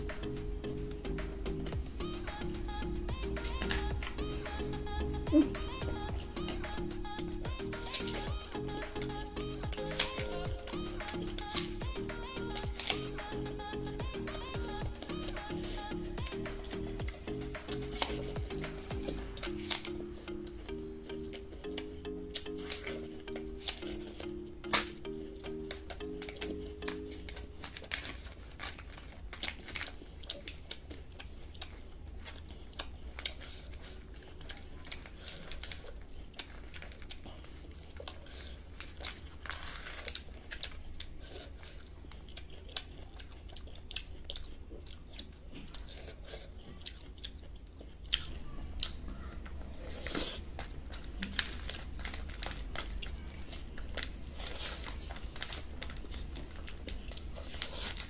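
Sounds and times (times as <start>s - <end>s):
chewing and smacking: 0.0s - 58.0s
steady low hum: 0.0s - 58.0s
foil tray crinkling: 22.4s - 46.0s, 50.7s - 58.0s.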